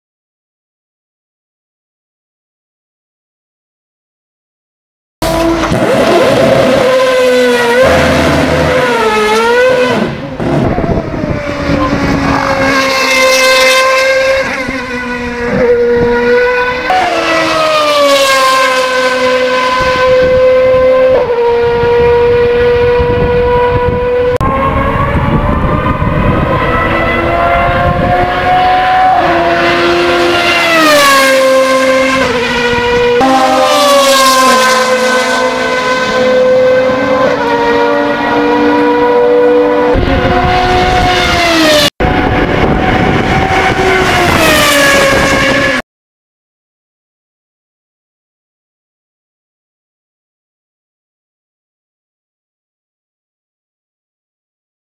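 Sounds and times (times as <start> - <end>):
race car engine revving: 5.2 - 45.8.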